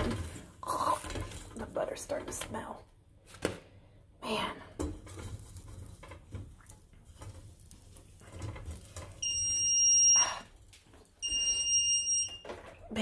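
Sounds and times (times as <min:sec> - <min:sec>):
smoke alarm beep: 0:09.2 - 0:10.5, 0:11.2 - 0:12.7.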